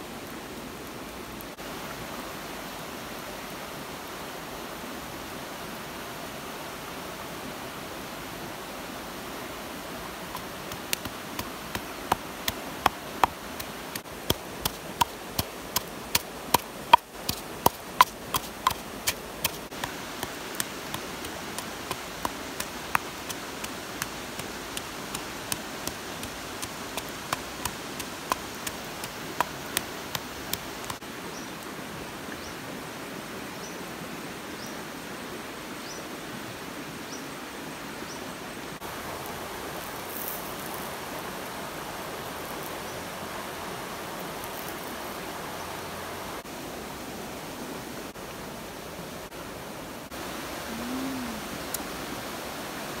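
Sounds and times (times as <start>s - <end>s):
steady hiss: 0.0s - 35.8s, 36.4s - 53.0s
wooden pestle pounding in mortar: 16.9s - 19.6s.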